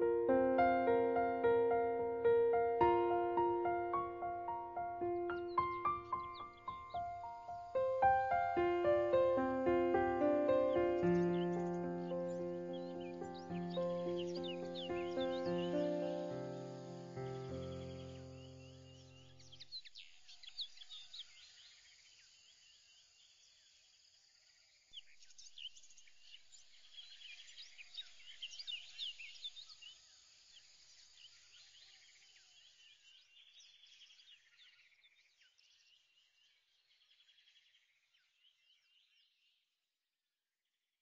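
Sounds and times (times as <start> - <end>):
steady high hiss: 0.0 - 19.2
bird chirping: 0.0 - 22.1, 24.9 - 39.6.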